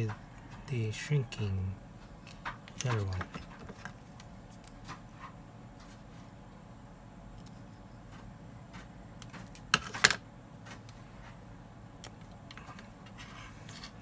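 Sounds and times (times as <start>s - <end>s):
clicks of wires and tools: 2.2s - 5.2s.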